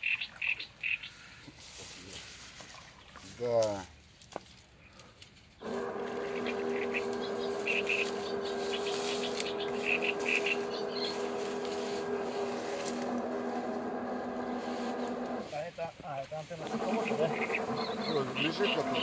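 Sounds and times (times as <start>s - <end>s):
electric motors humming: 5.6s - 15.8s, 16.4s - 19.0s.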